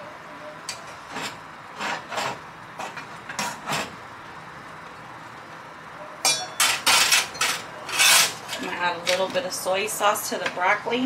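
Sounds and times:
metal tongs scraping a pan: 6.3s - 9.3s.

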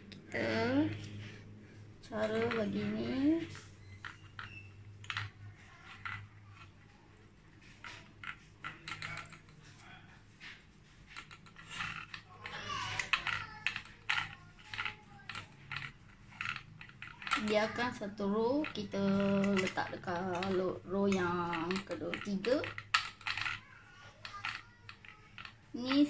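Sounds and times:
glass cups and metal tray clicking: 11.1s - 23.6s.

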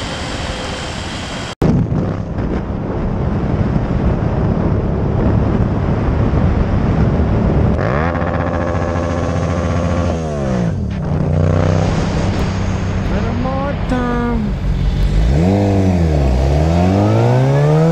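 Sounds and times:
wind rushing over microphone: 0.0s - 17.9s
motorcycle engine revving: 4.4s - 17.9s.

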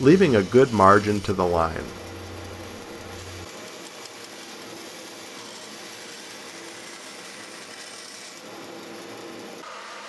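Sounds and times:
bandsaw cutting wood: 0.0s - 3.9s.

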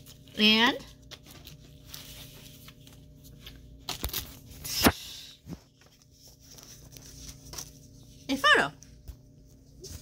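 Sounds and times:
tissue paper rustling: 0.0s - 4.9s, 5.6s - 8.5s
card drawn from envelope: 1.1s - 7.8s.

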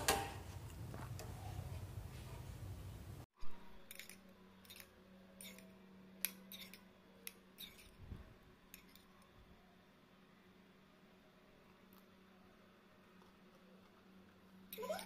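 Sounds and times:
metal spoon scraping a bowl: 3.8s - 8.0s, 8.7s - 9.3s.

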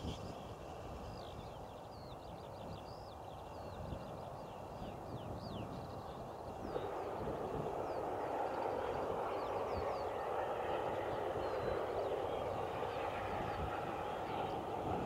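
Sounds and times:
wind buffeting microphone: 0.0s - 15.0s
birds chirping faintly: 1.0s - 14.9s
distant steam locomotive exhaust: 6.6s - 15.0s.

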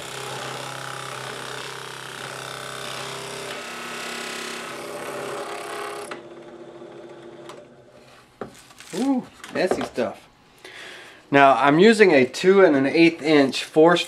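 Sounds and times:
drill bit boring into wood: 0.0s - 6.2s
drill press motor hum: 0.0s - 7.8s.

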